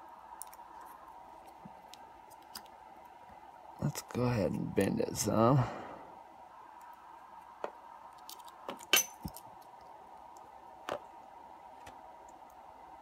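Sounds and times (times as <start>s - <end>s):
faint steady hum: 0.0s - 13.0s
light metallic clicks and clinks: 8.2s - 9.4s.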